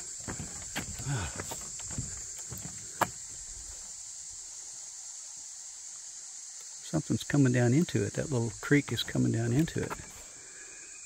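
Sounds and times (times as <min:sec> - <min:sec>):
footsteps on wooden planks: 0:00.0 - 0:03.9, 0:08.8 - 0:10.3
insects droning: 0:00.0 - 0:11.0.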